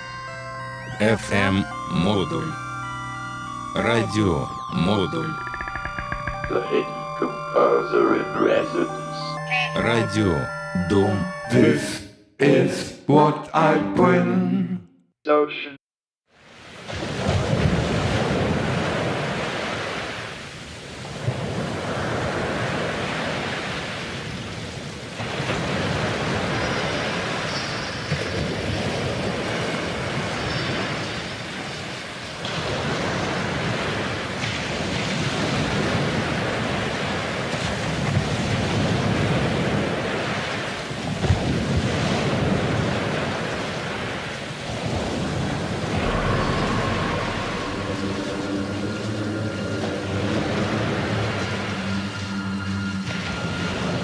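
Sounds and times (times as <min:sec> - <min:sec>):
ocean waves washing in: 0:16.3 - 0:54.0.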